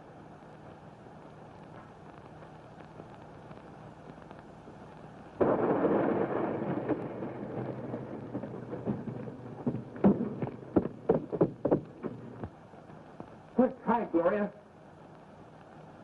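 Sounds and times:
faint soundtrack hiss: 0:00.0 - 0:16.0
sharp knocks: 0:06.8 - 0:12.5.

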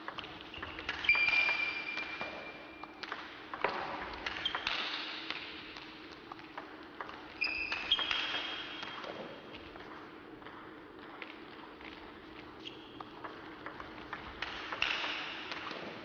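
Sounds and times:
ping pong ball clicking off paddles: 0:00.0 - 0:12.0, 0:12.6 - 0:16.0
ball bouncing on table: 0:00.1 - 0:05.8, 0:13.0 - 0:16.0
short high squeaks: 0:00.9 - 0:02.6.

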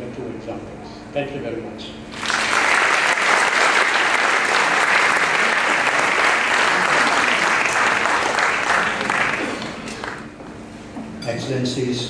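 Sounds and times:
audience applauding: 0:02.1 - 0:10.4.

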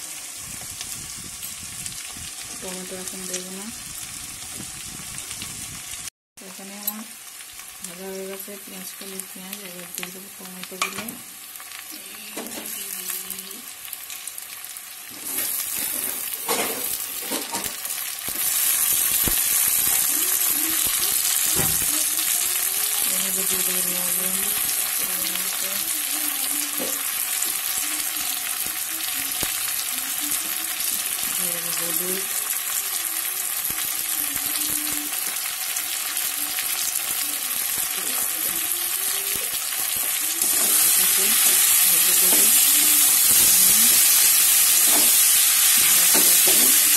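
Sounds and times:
vegetables sizzling in hot oil: 0:00.0 - 0:46.9
metal spatula stirring in wok: 0:40.4 - 0:41.0.

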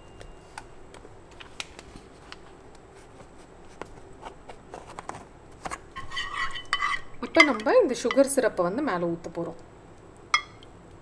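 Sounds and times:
knife scraping through cake: 0:06.0 - 0:07.1.

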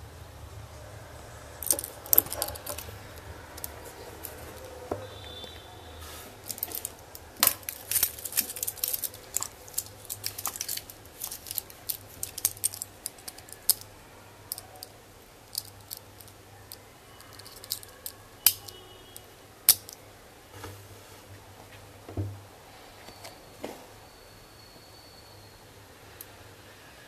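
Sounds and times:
metal watch bracelet clicking: 0:06.5 - 0:13.9, 0:15.5 - 0:18.8, 0:19.7 - 0:20.0.

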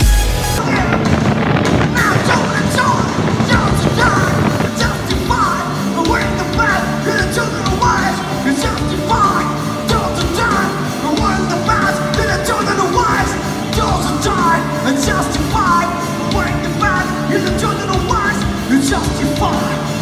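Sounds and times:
drums: 0:00.0 - 0:20.0
electric guitars: 0:00.0 - 0:20.0
person singing: 0:00.6 - 0:20.0.

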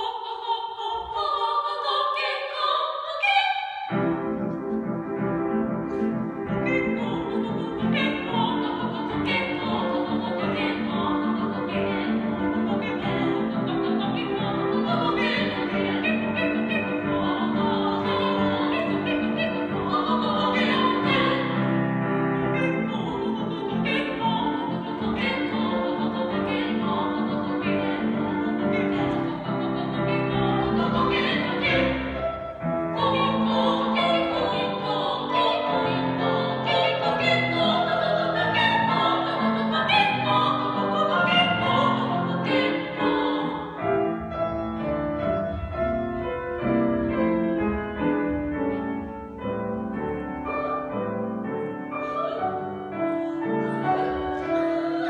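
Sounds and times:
operatic singing voices: 0:00.0 - 0:04.0, 0:06.5 - 0:44.2
instrumental accompaniment: 0:03.9 - 0:55.0.

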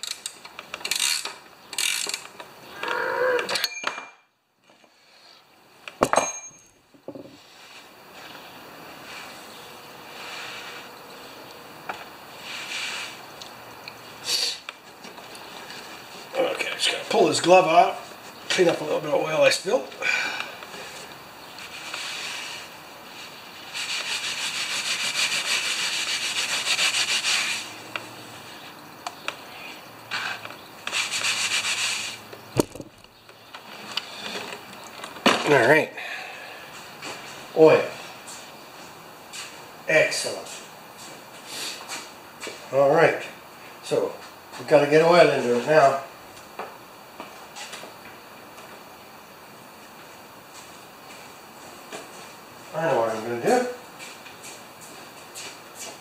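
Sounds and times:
ratchet wrench clicking: 0:00.0 - 0:02.3
sharp metallic clank: 0:03.5 - 0:04.2, 0:06.0 - 0:06.8
cloth rubbing on a wooden bench: 0:09.0 - 0:10.9, 0:12.4 - 0:13.2, 0:21.6 - 0:28.7, 0:30.9 - 0:32.2.

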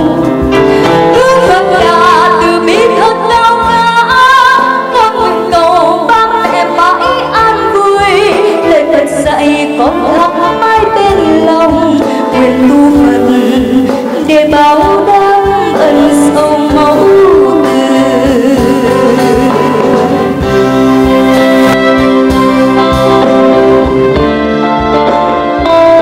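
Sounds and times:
woman singing into a microphone: 0:00.0 - 0:20.6
instrumental backing music: 0:00.0 - 0:26.0.

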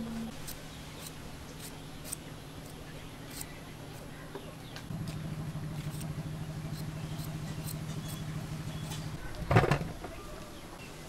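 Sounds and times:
small engine humming: 0:01.0 - 0:09.2.

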